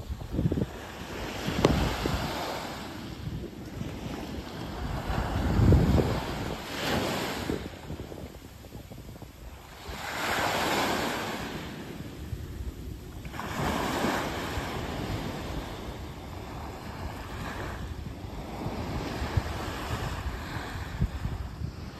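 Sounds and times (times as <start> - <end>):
waves washing onto beach: 0.0 - 21.9.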